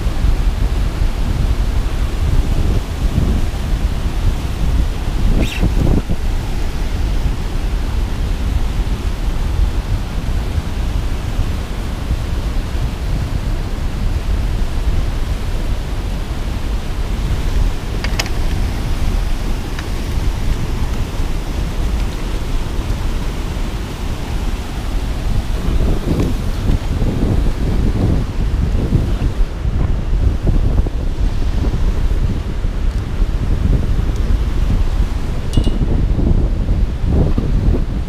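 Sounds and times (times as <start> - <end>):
churning foaming water rushing: 0.0 - 38.0
wind buffeting microphone: 0.0 - 38.0
sharp click: 5.4 - 5.9.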